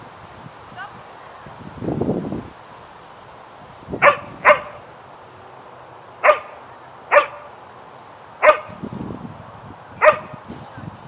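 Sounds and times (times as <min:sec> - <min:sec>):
dog barking: 0:04.0 - 0:04.8, 0:06.2 - 0:07.5, 0:08.4 - 0:08.8, 0:10.0 - 0:10.4.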